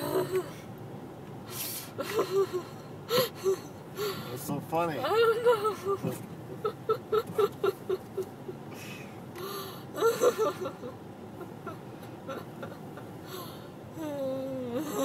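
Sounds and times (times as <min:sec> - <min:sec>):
car cabin road noise: 0:00.0 - 0:15.0
wheezy breath: 0:01.5 - 0:04.4, 0:08.7 - 0:10.0, 0:13.2 - 0:13.8.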